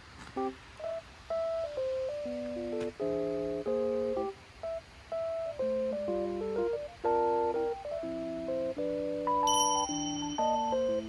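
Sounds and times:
plucked guitar chords: 0:07.6 - 0:11.0.

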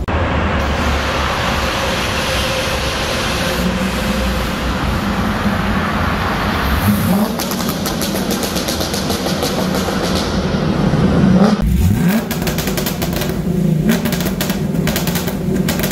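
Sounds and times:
car engine running loud: 0:00.0 - 0:15.9
exhaust popping crackle: 0:06.8 - 0:15.9.

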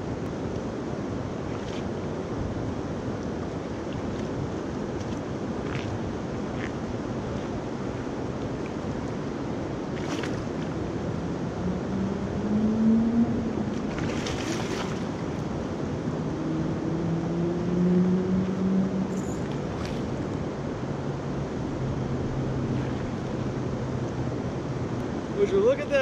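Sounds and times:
low droning hum: 0:00.8 - 0:25.4.

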